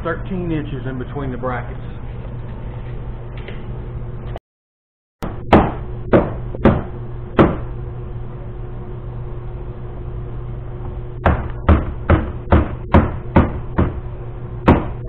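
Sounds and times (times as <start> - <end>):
steady low hum: 0.0 - 4.4, 5.2 - 15.0.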